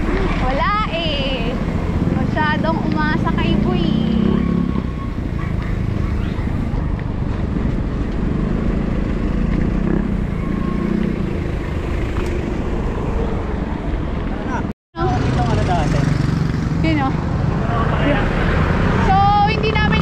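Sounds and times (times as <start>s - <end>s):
road noise: 0.0s - 20.0s.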